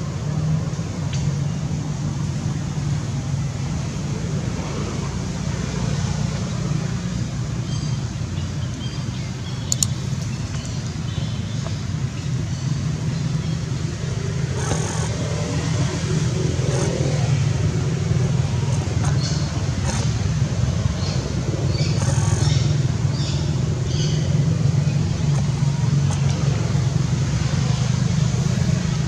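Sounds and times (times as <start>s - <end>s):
motor rumble with hiss: 0.0s - 29.0s
sharp click: 9.7s - 10.8s.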